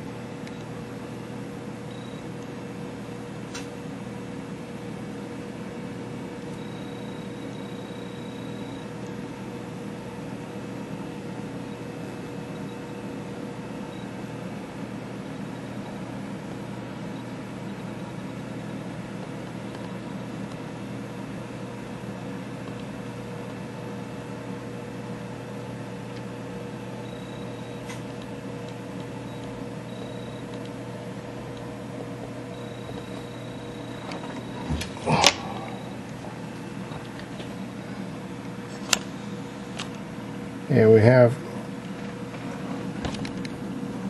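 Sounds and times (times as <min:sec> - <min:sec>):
room noise hum and hiss: 0:00.0 - 0:44.0
click: 0:00.4 - 0:00.7, 0:19.4 - 0:20.6, 0:22.6 - 0:22.9, 0:30.5 - 0:30.7.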